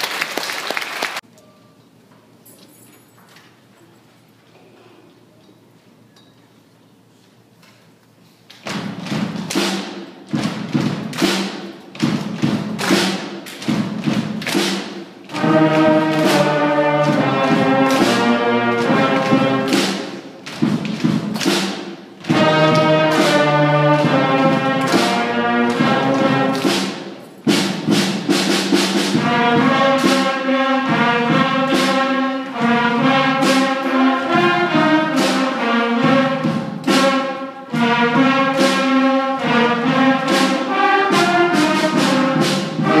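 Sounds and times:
percussion beats: 8.4 - 43.0
brass and woodwind chords: 15.3 - 19.8, 22.2 - 26.7, 29.2 - 43.0.

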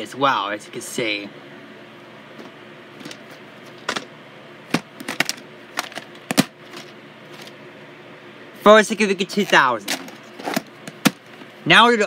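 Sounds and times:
plastic case clicks and knocks: 4.7 - 6.6.

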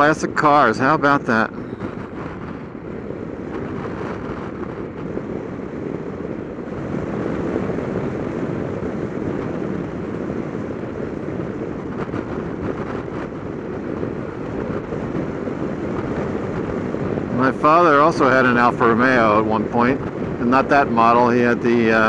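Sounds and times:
wind rush on microphone: 0.0 - 22.0.

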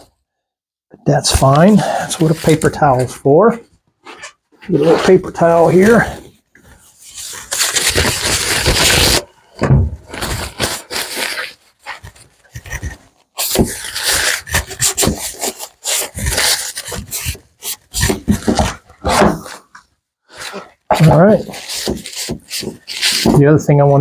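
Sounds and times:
paper rustling: 7.0 - 9.3, 10.0 - 19.7, 20.4 - 24.0
paper towel scrubbing wood: 20.5 - 24.0.

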